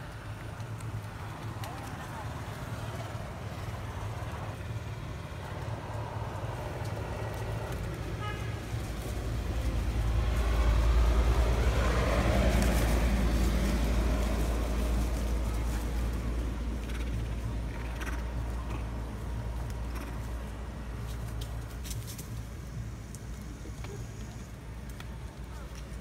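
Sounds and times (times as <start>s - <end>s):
low engine rumble: 0.0s - 26.0s.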